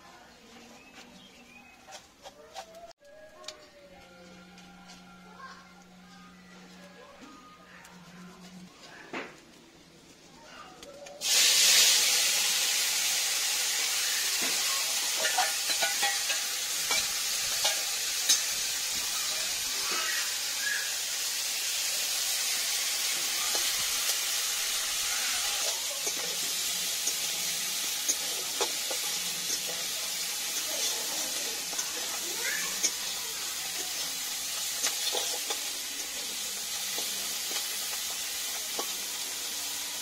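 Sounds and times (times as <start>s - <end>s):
prawns sizzling in hot oil: 11.0s - 40.0s
metal spatula scraping a pan: 14.4s - 20.0s, 22.3s - 39.3s.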